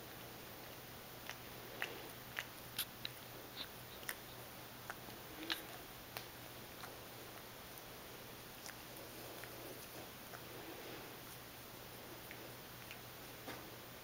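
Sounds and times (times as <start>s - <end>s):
cat licking mouth clicks: 1.2s - 7.8s.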